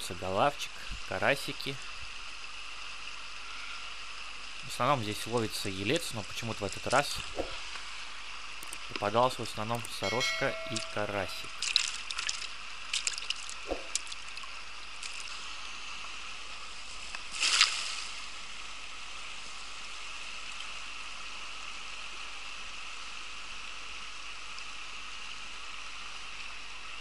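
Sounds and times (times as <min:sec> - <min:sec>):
river running over stones: 0:00.2 - 0:21.4
net splashing into water: 0:11.6 - 0:14.4, 0:17.3 - 0:18.2.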